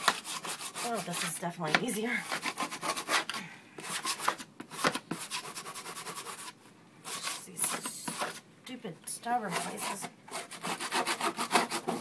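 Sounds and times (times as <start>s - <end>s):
hand tool scraping floor: 0.0s - 6.5s, 9.5s - 12.0s.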